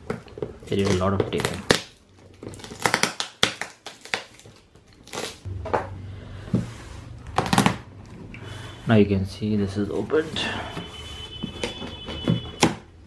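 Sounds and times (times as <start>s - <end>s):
tape rustling: 0.0s - 5.5s, 9.8s - 12.8s
packing tape ripping off cardboard: 0.6s - 5.5s.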